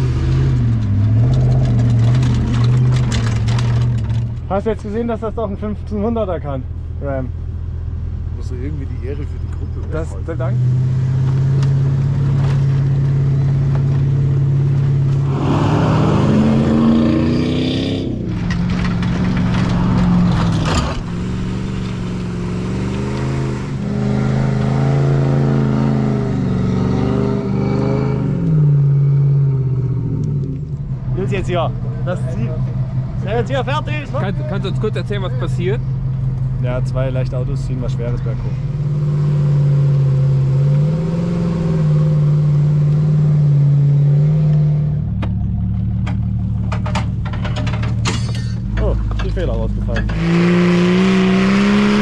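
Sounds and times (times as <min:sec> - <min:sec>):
car engine straining: 0:00.0 - 0:52.0
sharp clicks and knocks: 0:00.2 - 0:04.5, 0:18.3 - 0:21.2, 0:45.2 - 0:50.3.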